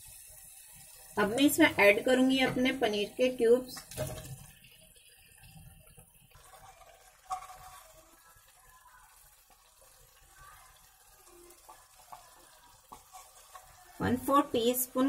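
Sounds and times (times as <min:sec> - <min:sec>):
gravy bubbling: 0:00.0 - 0:15.0.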